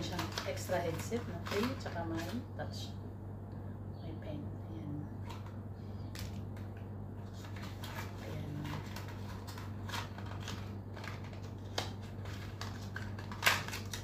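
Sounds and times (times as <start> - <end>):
cardboard packaging rustling and clicking: 0.0 - 2.4, 6.2 - 14.0
low hum: 0.0 - 14.0
packaging snap: 8.8 - 14.0.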